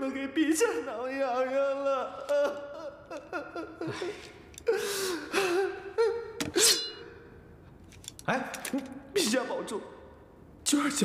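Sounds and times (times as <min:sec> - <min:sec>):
man sobbing: 0:00.1 - 0:06.4.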